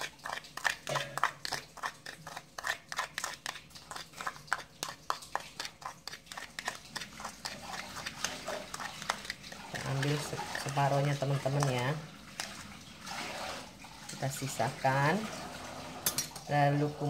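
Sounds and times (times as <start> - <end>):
metal spoon tapping and scraping dish: 0.0 - 12.6.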